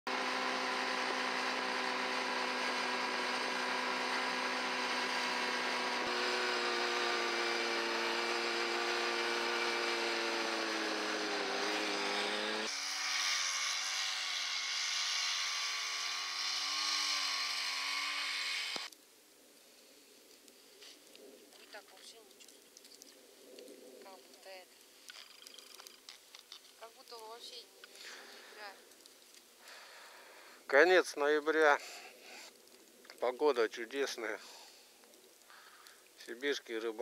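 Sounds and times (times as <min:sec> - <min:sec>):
vehicle engine droning: 0:00.1 - 0:12.7.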